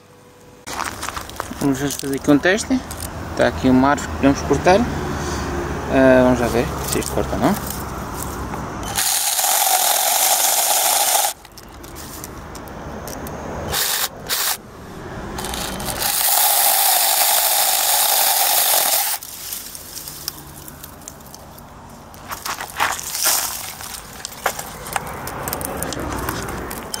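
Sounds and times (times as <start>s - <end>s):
mini chainsaw cutting: 8.8s - 11.4s, 13.7s - 14.6s, 15.3s - 21.0s.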